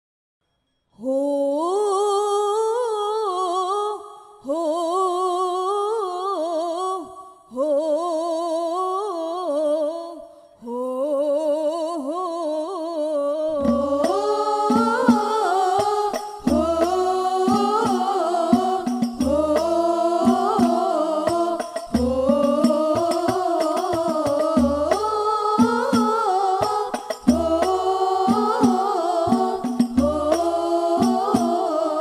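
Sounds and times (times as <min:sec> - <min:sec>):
unaccompanied devotional singing: 0:01.0 - 0:32.0
frame drums: 0:13.6 - 0:32.0.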